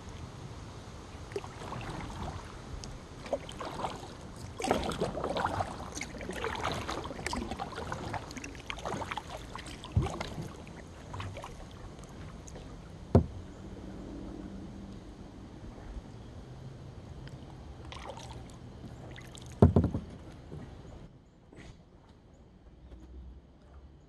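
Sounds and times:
kayak paddle splashing in water: 1.3s - 13.4s, 17.9s - 20.1s
water dripping off paddle: 2.8s - 12.6s
paddle knock: 6.5s - 10.6s, 12.5s - 13.5s, 19.5s - 20.7s.

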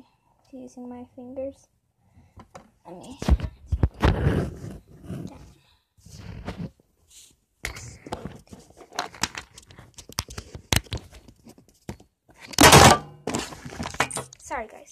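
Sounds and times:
loud rubbing scrape: 4.0s - 5.5s.

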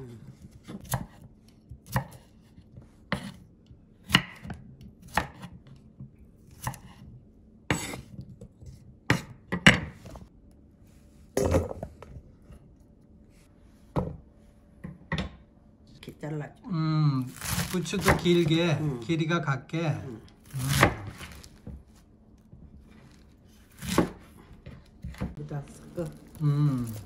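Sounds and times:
knife chopping on wooden board: 0.4s - 3.4s, 4.0s - 5.7s, 6.5s - 7.0s, 7.7s - 8.2s, 9.1s - 10.2s, 17.4s - 18.7s, 20.4s - 21.8s, 23.7s - 25.4s.

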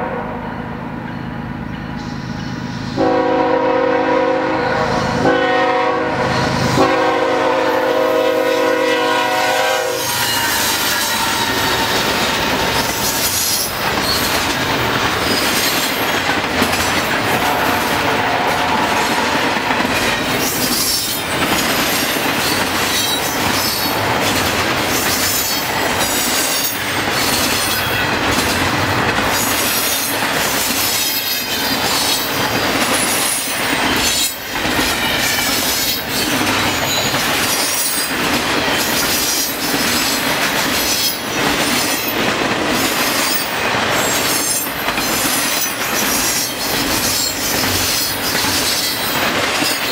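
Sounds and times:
train wheels rumbling on rail: 0.0s - 49.9s
high-pitched wheel squeals: 10.0s - 14.4s
clacks over rail joints: 10.2s - 49.9s.

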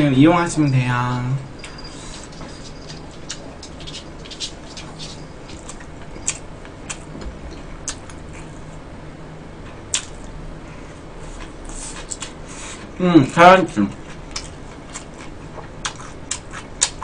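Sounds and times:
low steady hum: 0.0s - 17.0s
chewing and wet mouth smacks: 2.6s - 8.5s, 9.9s - 10.3s, 14.2s - 17.0s.

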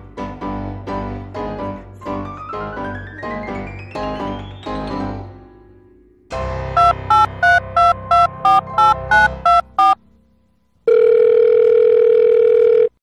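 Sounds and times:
electronic keypad beeps: 6.8s - 10.0s
long steady electronic tone: 6.8s - 10.0s.

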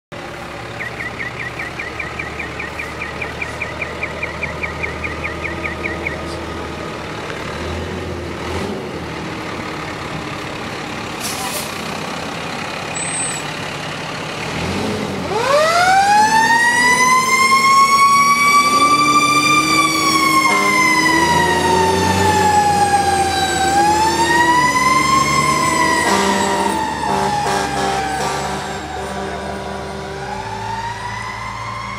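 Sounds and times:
fire engine engine running: 0.1s - 31.9s
siren wailing: 0.8s - 6.4s, 15.3s - 31.9s.

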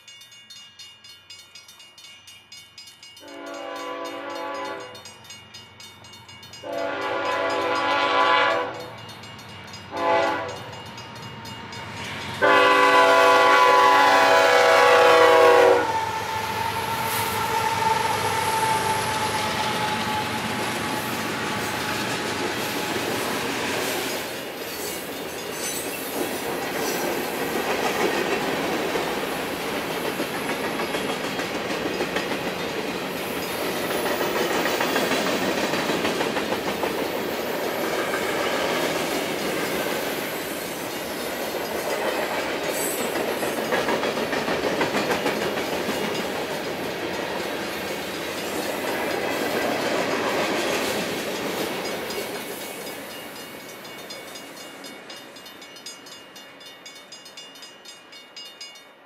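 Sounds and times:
train wheels on rails: 3.0s - 58.8s
locomotive air horn blasts: 3.3s - 5.0s, 6.6s - 8.9s, 9.9s - 10.7s, 12.4s - 21.0s.

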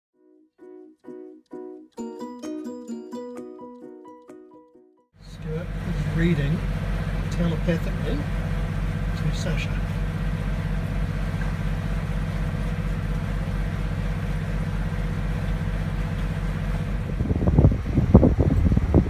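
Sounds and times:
boat engine humming: 5.2s - 19.0s
wind buffeting microphone: 5.5s - 19.0s.

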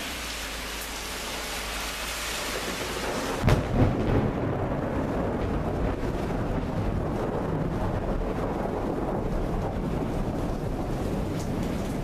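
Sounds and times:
heavy rain hissing: 0.0s - 5.2s
thunderclap: 2.4s - 12.0s.

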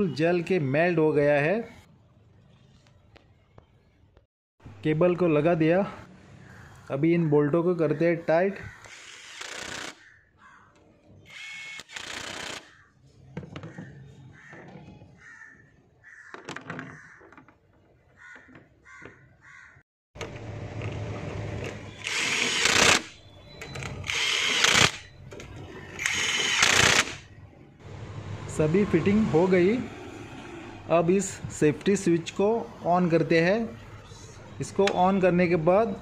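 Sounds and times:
crows cawing: 8.5s - 9.1s, 9.9s - 10.9s, 12.5s - 13.0s, 13.6s - 19.8s.

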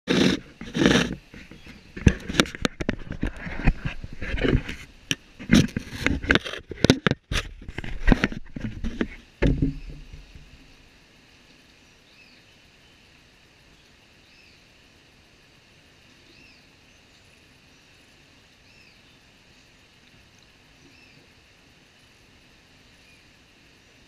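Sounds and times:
sharp knocks and bumps: 5.4s - 10.6s.

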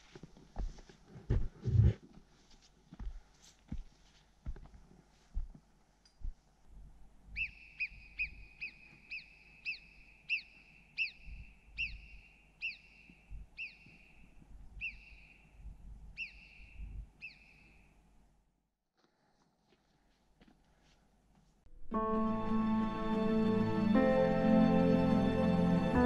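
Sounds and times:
faint low thuds: 0.6s - 2.0s
marmot alarm whistles: 7.4s - 14.2s, 14.8s - 15.6s, 16.2s - 17.8s.

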